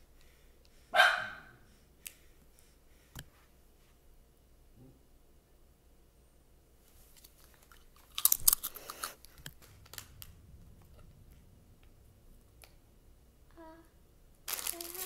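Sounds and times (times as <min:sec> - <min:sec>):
child crunching a chip: 0:07.1 - 0:10.1, 0:14.5 - 0:15.0.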